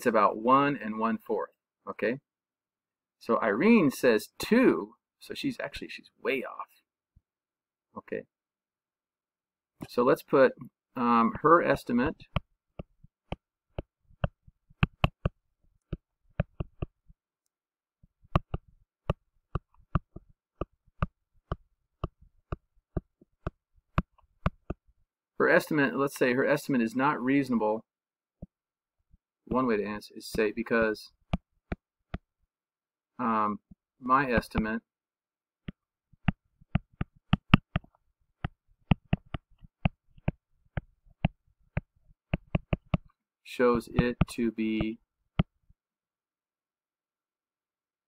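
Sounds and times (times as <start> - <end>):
stylus clicking on tablet screen: 12.1 - 17.1, 18.0 - 24.9, 35.6 - 43.2.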